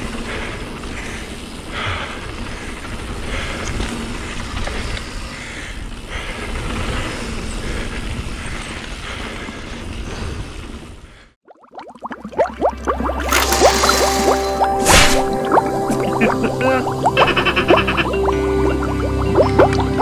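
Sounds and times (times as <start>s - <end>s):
bike clicks and rattles: 0.0s - 11.1s
bike tyres rolling over gravel: 0.0s - 11.2s.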